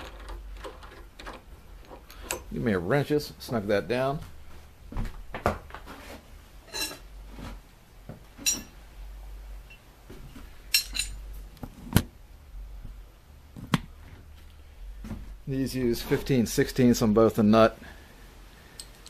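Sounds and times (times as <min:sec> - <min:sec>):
low steady hum: 0:00.0 - 0:19.0
metal hand tools clinking: 0:08.4 - 0:08.7, 0:10.7 - 0:11.2.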